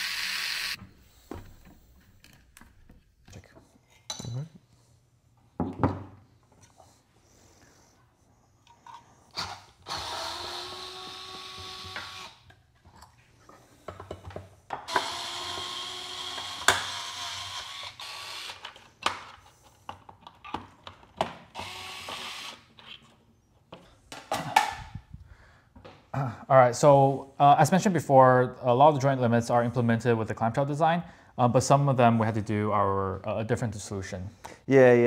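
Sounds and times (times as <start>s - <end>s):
electric screwdriver whining: 0.0s - 0.8s, 9.4s - 12.4s, 14.9s - 18.8s, 21.6s - 22.7s.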